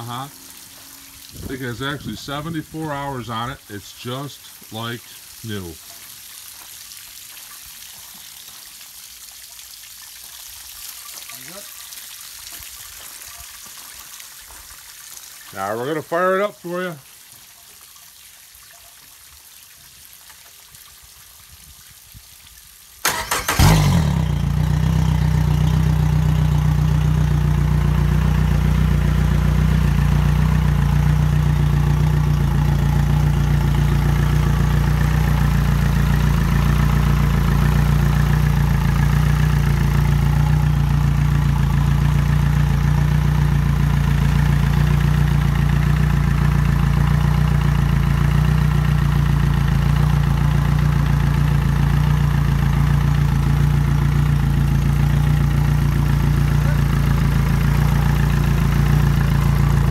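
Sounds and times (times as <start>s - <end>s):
outboard motor idling: 0.0s - 5.8s, 23.0s - 59.9s
electric starter cranking: 23.0s - 24.9s.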